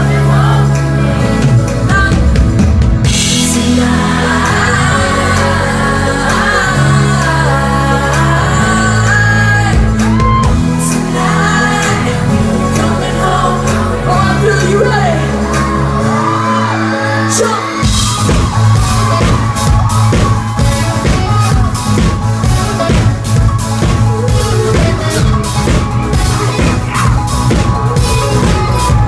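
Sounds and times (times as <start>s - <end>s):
male singer: 0.0s - 2.2s, 3.2s - 17.8s
drum kit: 0.0s - 16.8s, 17.6s - 29.0s
bass: 0.0s - 29.0s
keyboard chords: 0.0s - 29.0s
crowd shouting: 8.6s - 29.0s.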